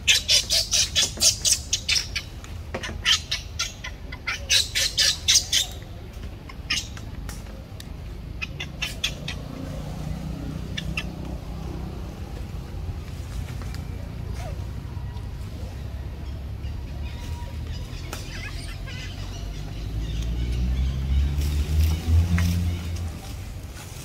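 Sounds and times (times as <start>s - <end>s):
baby monkey squealing: 0.0s - 5.8s, 8.4s - 9.6s, 16.6s - 20.2s.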